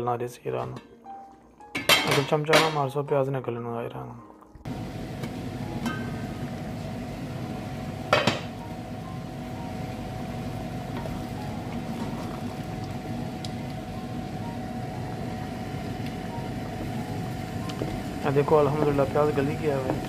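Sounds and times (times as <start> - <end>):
gas hob hissing: 4.7 - 20.0.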